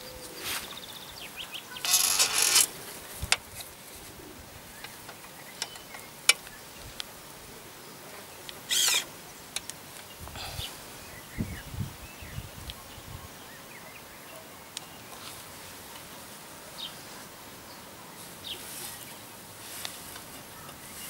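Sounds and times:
frame clicking: 1.8s - 2.7s
frame scraping rasps: 1.8s - 2.7s, 8.7s - 9.1s.

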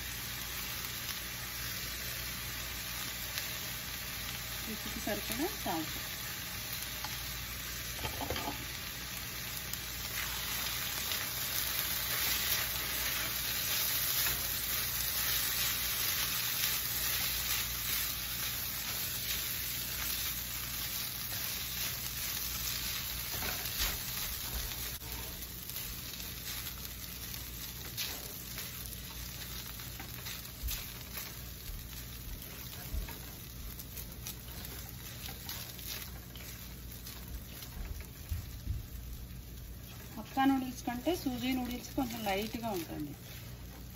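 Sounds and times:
food sizzling in a wok: 0.0s - 43.9s
spatula tapping and scraping pan: 8.0s - 8.6s.

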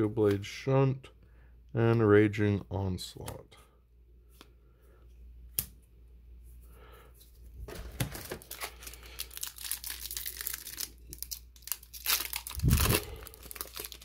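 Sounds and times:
plastic wrapper crinkling and tearing: 8.0s - 14.0s.

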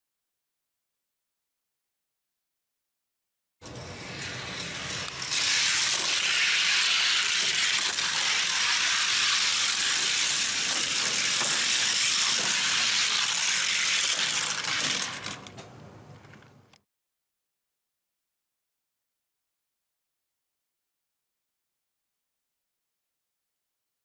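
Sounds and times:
toy cars rattling down plastic track: 3.6s - 15.6s.

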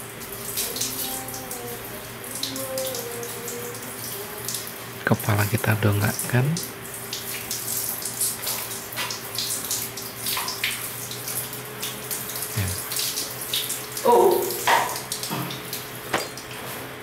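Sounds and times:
shower spraying water on fur: 0.0s - 17.0s
short vocal sound: 12.6s - 12.8s.

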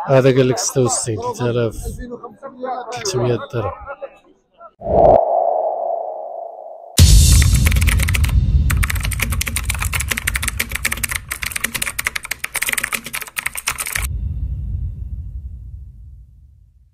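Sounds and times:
rapid dense clicking: 7.0s - 14.1s
low rumble: 14.1s - 16.9s.

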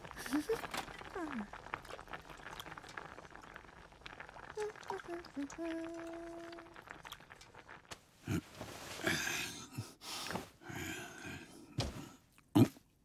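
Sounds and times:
man grunting and sighing: 9.0s - 10.0s.

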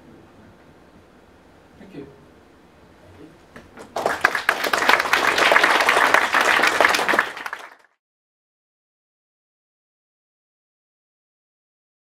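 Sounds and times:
audience applauding: 3.8s - 8.0s.

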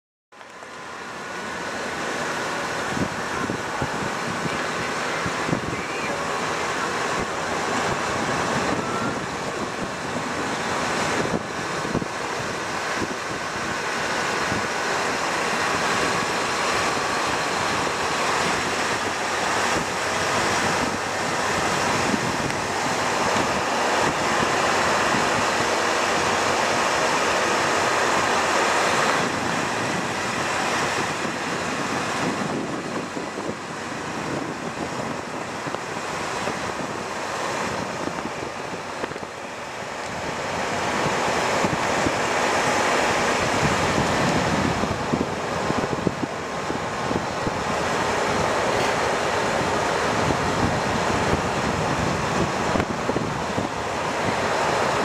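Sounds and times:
vehicle road noise: 0.3s - 55.0s
wind buffeting microphone: 0.8s - 55.0s.

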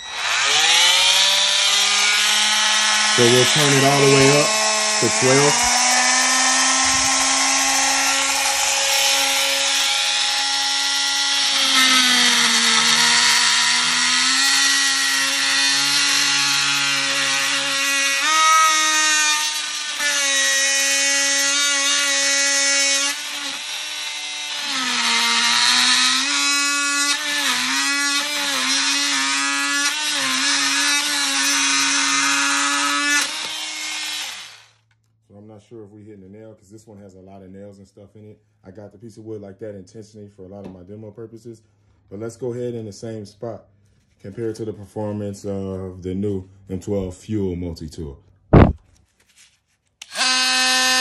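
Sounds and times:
oscillating multi-tool cutting wood: 0.0s - 34.8s, 48.6s - 48.8s, 50.0s - 51.0s.

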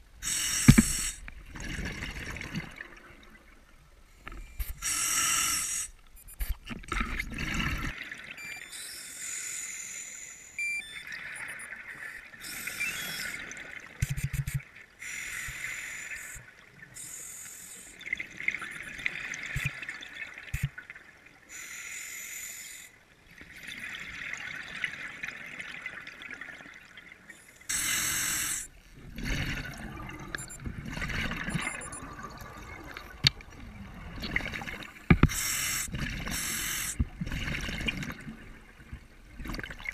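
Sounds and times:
regulator hissing inhalations: 0.2s - 1.2s, 4.7s - 6.0s, 8.8s - 10.6s, 15.0s - 16.4s, 17.0s - 18.0s, 21.5s - 22.9s, 27.7s - 28.8s, 35.3s - 37.0s
gurgling exhaled bubbles: 29.0s - 34.9s.

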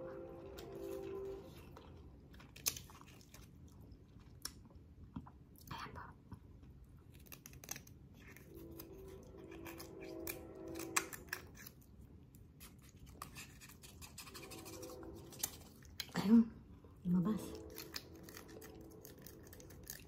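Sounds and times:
low held hum: 0.0s - 20.0s
chopstick scraping inside bone: 12.6s - 16.0s.

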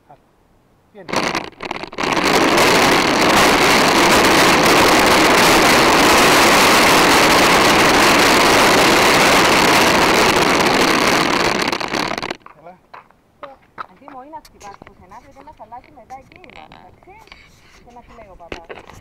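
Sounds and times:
plastic wheels rolling on asphalt: 1.1s - 12.6s, 13.8s - 17.2s
short scrapes: 17.2s - 18.3s.

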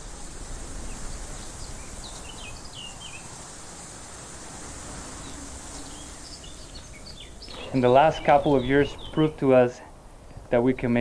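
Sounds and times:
steady background hiss: 0.0s - 11.0s
bird chirps: 0.9s - 3.4s, 5.1s - 10.4s.

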